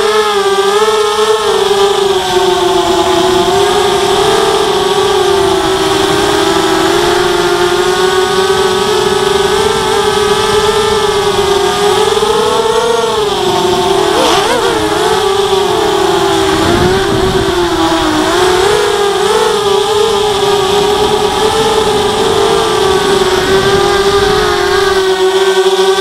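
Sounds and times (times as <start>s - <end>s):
quadcopter motors whining: 0.0s - 26.0s.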